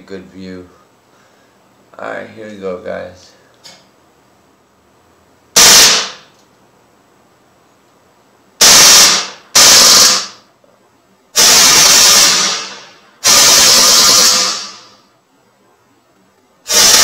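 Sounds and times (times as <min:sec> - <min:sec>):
bb pistol firing full auto bursts: 0:05.6 - 0:06.2, 0:08.6 - 0:10.4.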